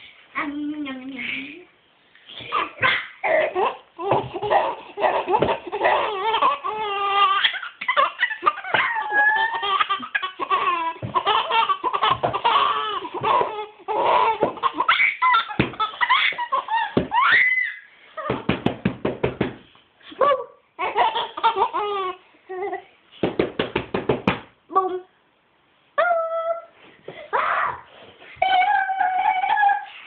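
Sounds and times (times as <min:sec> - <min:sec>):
infant laughing: 0:02.4 - 0:18.4, 0:20.8 - 0:22.9, 0:28.4 - 0:30.0.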